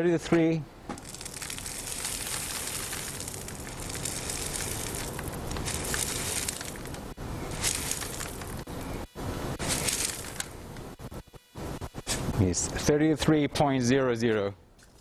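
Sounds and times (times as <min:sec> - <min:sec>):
gravel scooped into plastic bucket: 0:01.0 - 0:08.5, 0:09.6 - 0:10.4.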